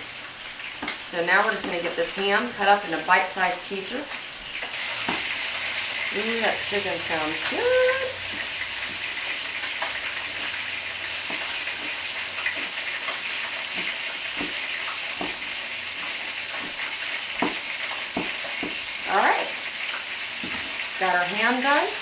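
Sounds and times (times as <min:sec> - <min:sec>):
oil sizzling in skillet: 0:00.0 - 0:22.0
knife tapping on cutting board: 0:18.2 - 0:18.8.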